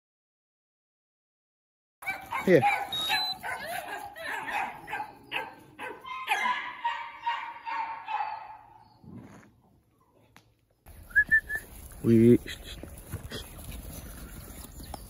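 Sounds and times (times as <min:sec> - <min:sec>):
dog whining and yelping: 0:02.1 - 0:08.6.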